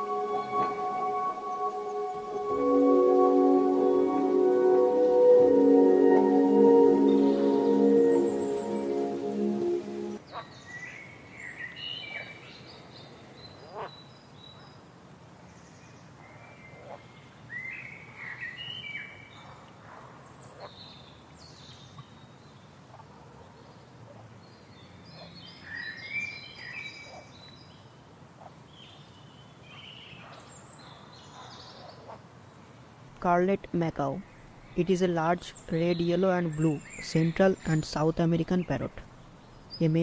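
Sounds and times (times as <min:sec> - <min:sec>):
steady background hiss: 0:00.0 - 0:40.0
small birds chirping: 0:33.2 - 0:40.0.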